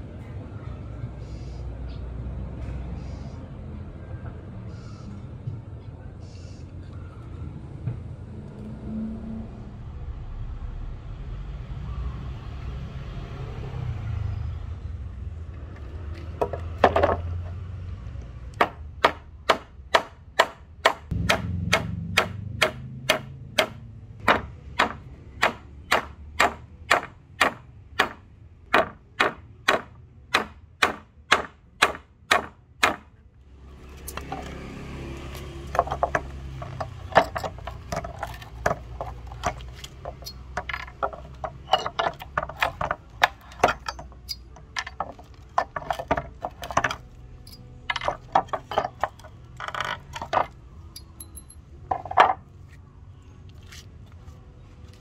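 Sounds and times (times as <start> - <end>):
hammer striking nails into wood: 18.6 - 33.1, 35.8 - 47.0
irregular knocks and clicks: 35.7 - 47.0.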